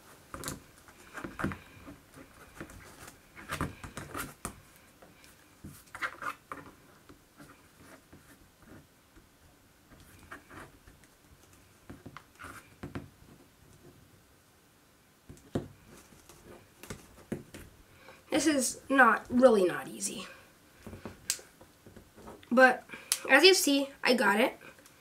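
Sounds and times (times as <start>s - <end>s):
plastic rubbing: 0.0s - 8.9s.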